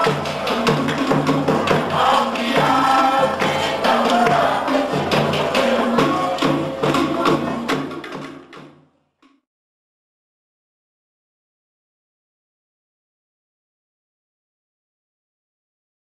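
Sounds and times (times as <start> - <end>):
voices singing in chorus: 0.0 - 8.0
fast steady drumming: 0.0 - 8.9.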